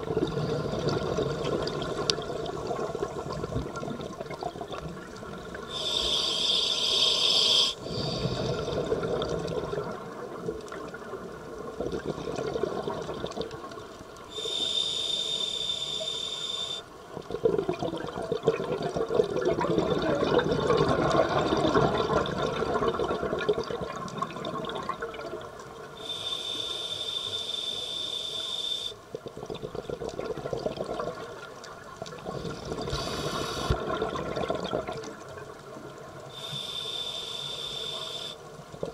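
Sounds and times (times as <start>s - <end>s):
exhaled air bubbling: 0.0s - 14.9s, 15.5s - 26.2s, 28.6s - 37.1s
regulator inhalation hiss: 5.7s - 8.6s, 14.3s - 16.9s, 26.0s - 29.0s, 32.9s - 33.8s, 36.3s - 38.4s.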